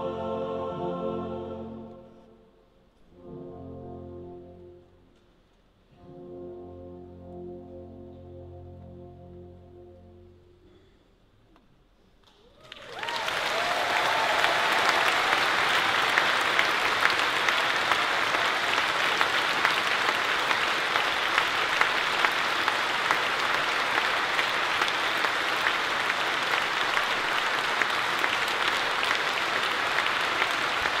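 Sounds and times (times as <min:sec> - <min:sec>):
audience applauding: 0:12.5 - 0:31.0.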